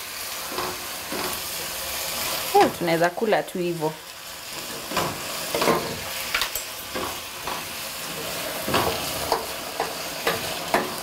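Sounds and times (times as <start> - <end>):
peppers sizzling in a pan: 0.0 - 11.0
spatula scraping and tapping pan: 0.5 - 1.5, 4.5 - 11.0.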